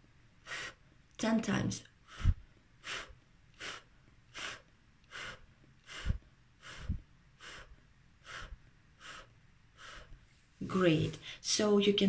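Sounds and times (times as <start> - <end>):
woman blowing puffs of air: 0.4 - 0.9, 2.0 - 10.4.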